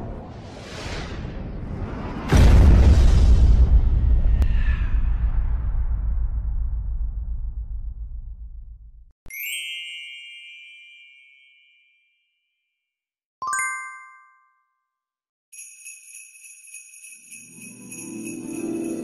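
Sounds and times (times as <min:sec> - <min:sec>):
christmas music: 0:09.3 - 0:12.3, 0:13.4 - 0:14.8, 0:15.6 - 0:19.0
jingle bells shaking: 0:15.6 - 0:19.0.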